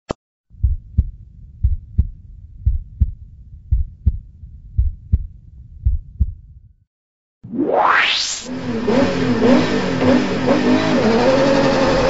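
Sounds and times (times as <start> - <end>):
slow heartbeat thumps: 0.5 - 6.8
low steady hum: 0.6 - 6.8.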